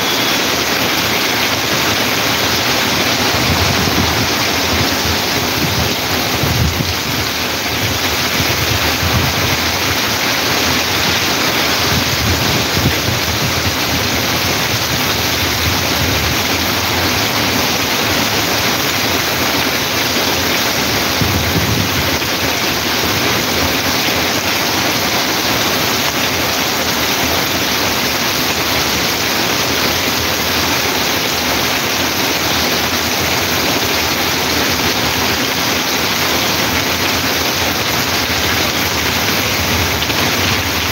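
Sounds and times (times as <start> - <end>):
heavy rain pouring: 0.0 - 40.9
runoff water rushing: 0.0 - 40.9.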